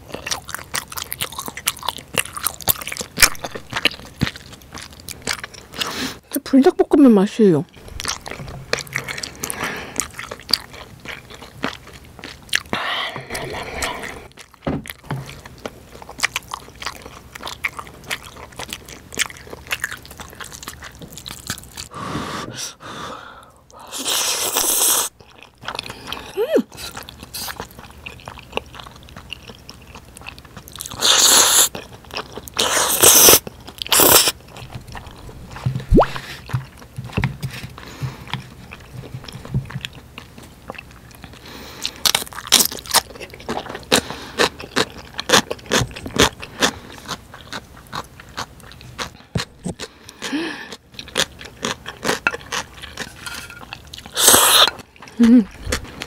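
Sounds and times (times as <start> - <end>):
chewing food: 0.0 - 6.4, 7.7 - 21.9, 23.7 - 56.0
slurping noodles: 13.3 - 14.3, 23.8 - 25.1, 31.0 - 31.7, 32.6 - 34.4, 54.1 - 54.8.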